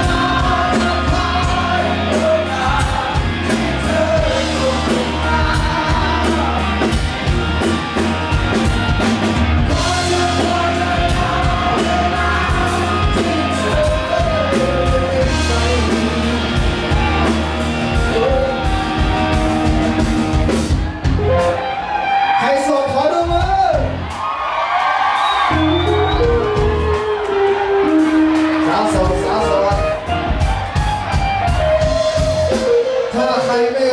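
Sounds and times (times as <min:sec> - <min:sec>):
man singing long notes: 0:00.0 - 0:07.0, 0:09.7 - 0:19.7
live rock band playing: 0:00.0 - 0:33.9.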